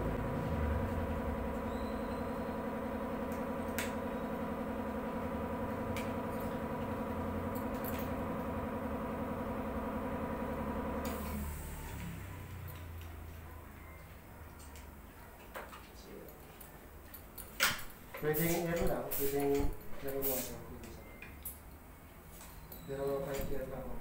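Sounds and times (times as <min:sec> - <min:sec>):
air compressor droning: 0:00.0 - 0:13.2, 0:17.8 - 0:20.8.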